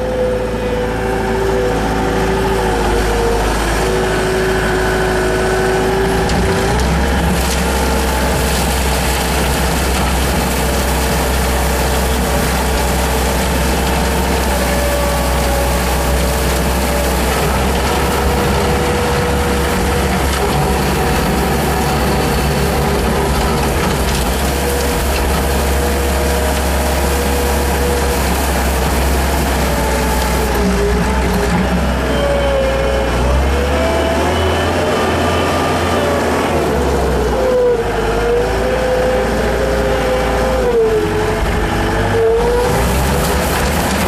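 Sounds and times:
loader engine rumbling: 0.0 - 44.0
whining tones: 0.0 - 44.0
sweeper broom against pavement: 7.3 - 30.6, 42.7 - 44.0
mechanical clatter: 42.7 - 44.0.

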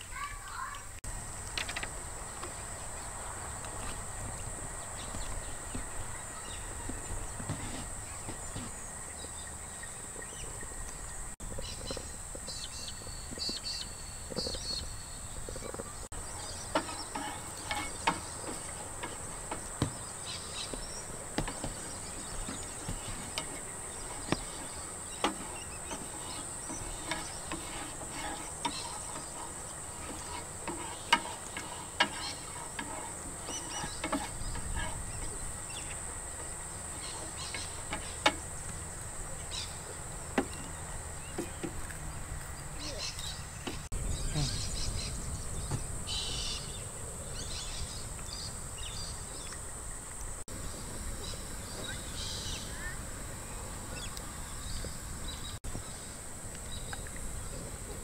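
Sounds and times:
insects droning: 0.0 - 58.0
wooden spatula tapping frying pan: 23.0 - 34.9.

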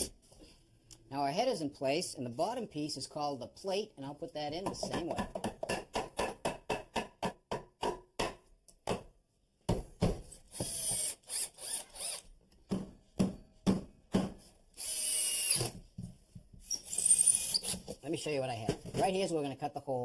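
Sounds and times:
power drill driving screws: 10.5 - 12.3, 14.8 - 15.8, 16.6 - 18.0.

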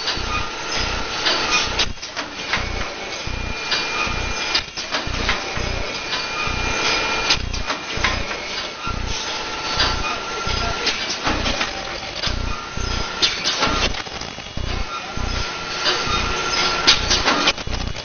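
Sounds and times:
machine mechanism clicks and knocks: 0.0 - 14.9, 15.8 - 18.0
machine low pulsing: 0.0 - 18.0
steady high whine: 0.0 - 18.0.

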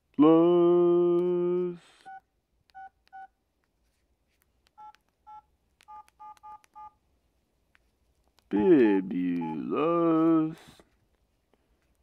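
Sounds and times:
phone keypad beeps: 2.1 - 3.3, 4.8 - 6.9.

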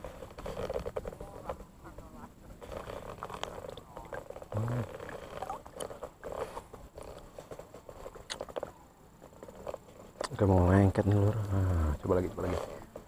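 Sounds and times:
water sloshing and lapping: 2.6 - 7.2.

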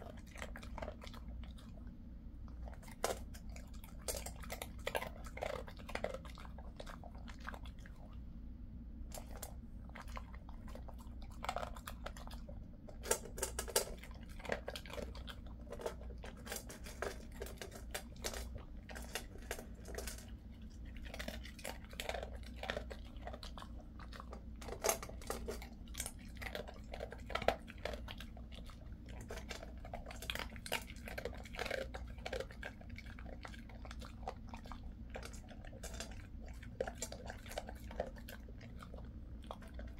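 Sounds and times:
dog chewing and crunching: 0.0 - 8.3, 9.1 - 39.9
steady low hum: 0.0 - 39.9.

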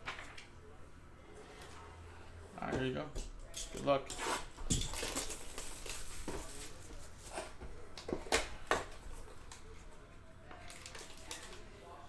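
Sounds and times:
plastic shrink-wrap tearing: 4.9 - 6.6.

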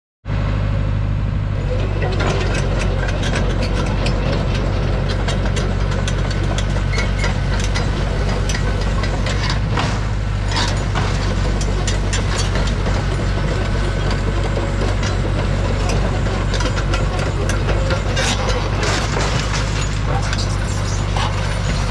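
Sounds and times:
drilling rig engine running: 0.3 - 21.9
sharp clicks and clanks: 1.7 - 21.9.

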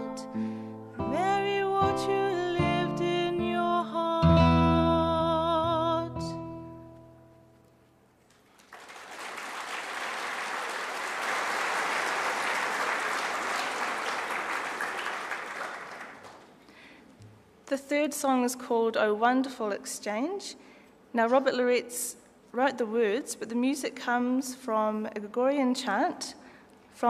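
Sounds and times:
audience applauding: 8.3 - 16.6.

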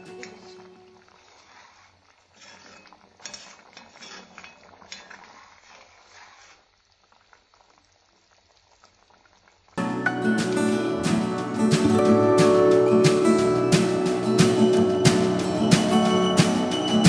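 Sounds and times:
curry bubbling in a pan: 0.2 - 9.8
metal spoon stirring: 1.3 - 6.6.

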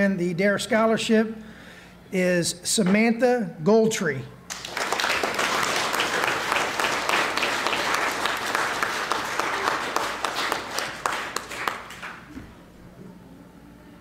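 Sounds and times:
audience applause: 4.5 - 12.3.

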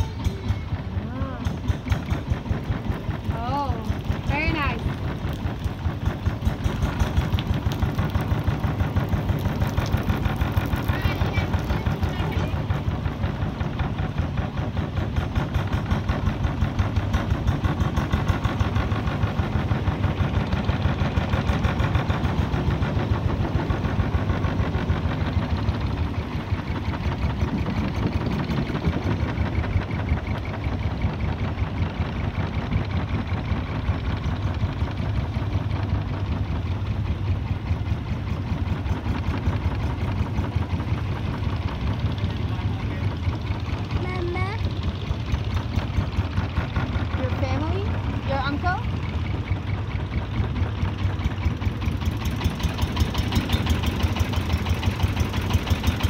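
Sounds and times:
boat engine pulsing: 0.0 - 56.0.

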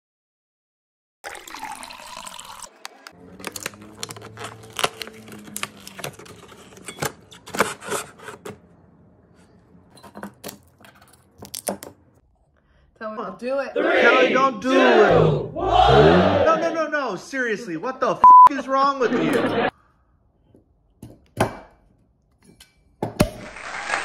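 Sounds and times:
wine pouring into a glass: 1.2 - 3.0
cardboard crackling and tearing: 3.4 - 6.7.

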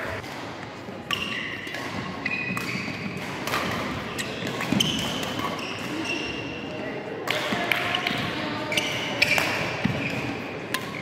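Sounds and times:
racket hitting shuttlecock: 0.0 - 6.4, 7.2 - 11.0
shoes squeaking on court floor: 1.0 - 6.7, 8.1 - 11.0.

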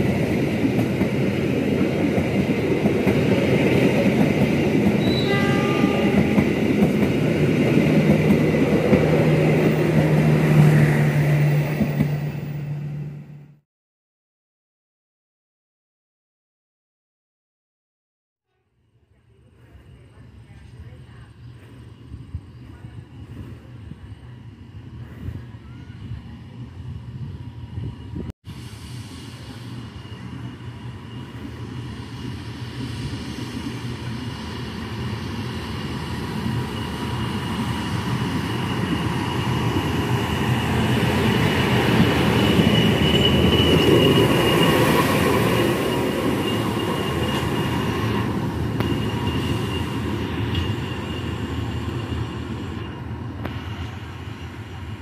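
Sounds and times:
wheels rumbling on rails: 0.0 - 13.6, 29.4 - 55.0
steady high whine: 27.4 - 55.0.

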